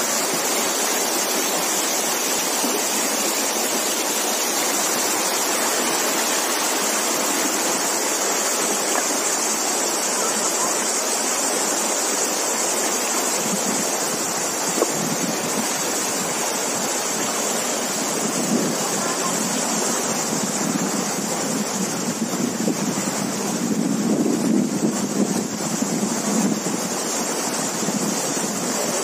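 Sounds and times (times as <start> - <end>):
stream water running over stones: 0.0 - 29.0
wind buffeting microphone: 13.4 - 29.0.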